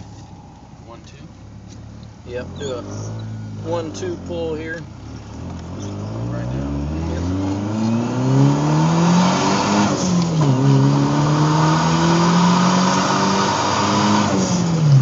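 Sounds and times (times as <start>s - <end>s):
car engine revving under boost: 4.9s - 15.0s.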